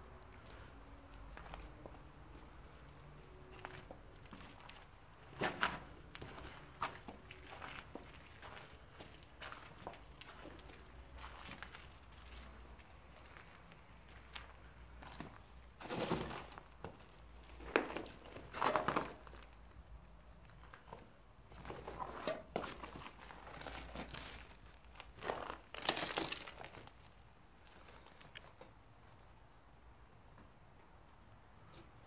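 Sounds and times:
footsteps crunching on rubble: 3.5 - 19.6, 20.5 - 28.7.

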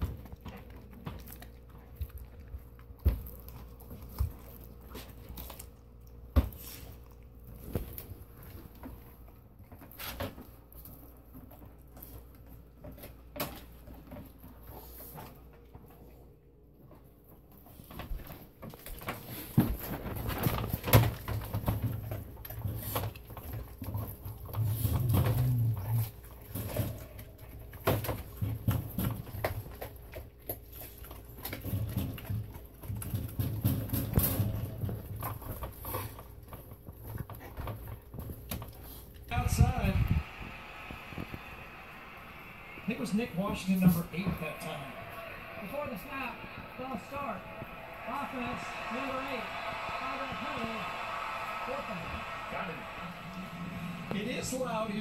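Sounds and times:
dog chewing frozen meat: 0.0 - 39.9.

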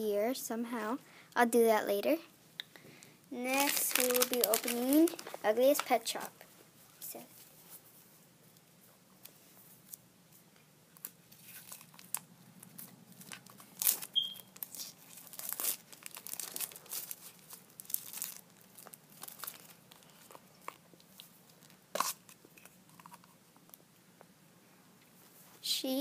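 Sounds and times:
plastic packaging crinkling: 3.4 - 6.3, 11.0 - 23.8.

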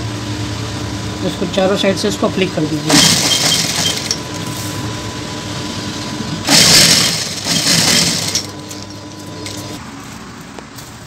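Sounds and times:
industrial sewing machine running: 1.2 - 9.8.

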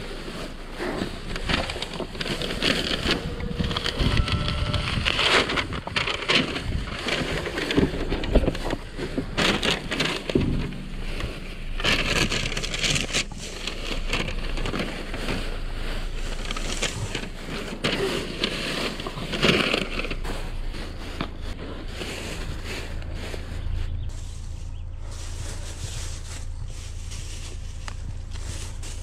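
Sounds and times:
low steady hum: 0.0 - 29.0
plastic bags crinkling and rustling: 0.0 - 29.0.

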